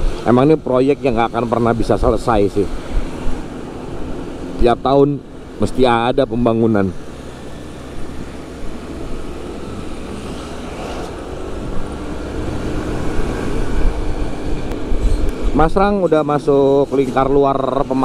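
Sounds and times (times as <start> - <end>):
wind noise on microphone: 0.0 - 4.4, 7.6 - 16.0
road rumble: 0.0 - 18.0
scooter engine: 0.0 - 18.0.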